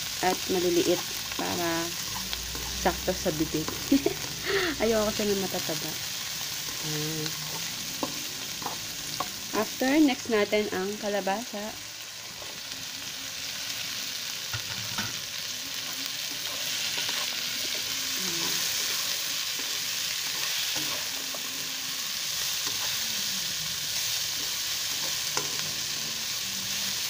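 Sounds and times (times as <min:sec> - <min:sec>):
vegetables sizzling in a wok: 0:00.0 - 0:27.0
spatula scraping a pan: 0:15.8 - 0:21.7.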